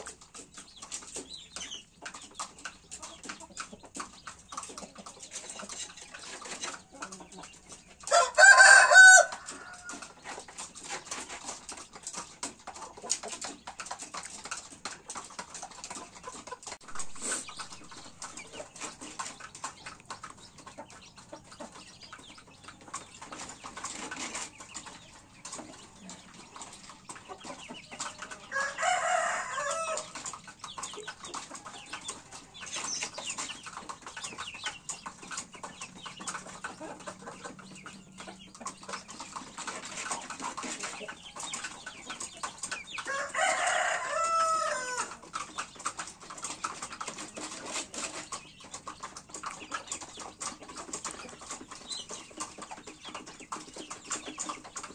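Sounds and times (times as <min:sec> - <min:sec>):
chickens calling softly: 0:00.0 - 0:54.9
chickens pecking at dirt: 0:00.0 - 0:54.9
rooster crowing: 0:08.1 - 0:09.9, 0:28.5 - 0:30.2, 0:43.1 - 0:45.1.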